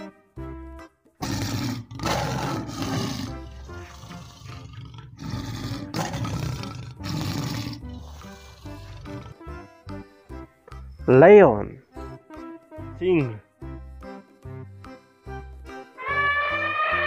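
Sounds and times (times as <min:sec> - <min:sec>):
background music: 0:00.0 - 0:17.0
lion roaring: 0:01.2 - 0:09.6.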